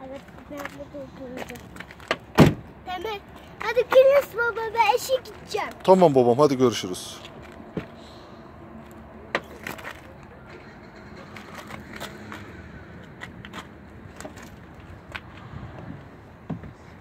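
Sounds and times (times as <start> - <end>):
steady background noise: 0.0 - 17.0
car door and handle knocks: 2.1 - 2.6.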